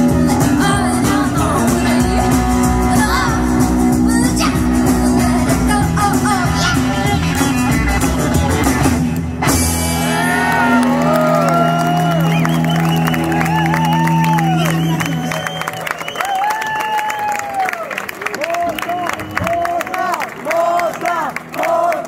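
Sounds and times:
woman singing: 0.0s - 7.8s
live rock and roll band: 0.0s - 17.5s
audience cheering and whooping: 9.9s - 22.0s.

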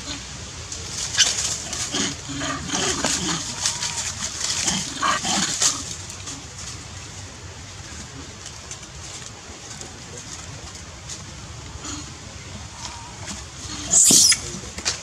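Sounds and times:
monkeys calling and grunting: 11.8s - 14.6s.

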